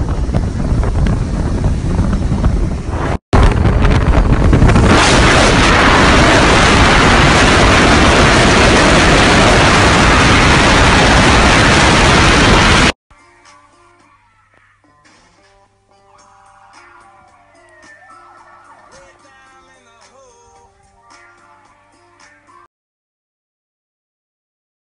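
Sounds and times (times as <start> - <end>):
wind buffeting microphone: 0.0 - 12.9.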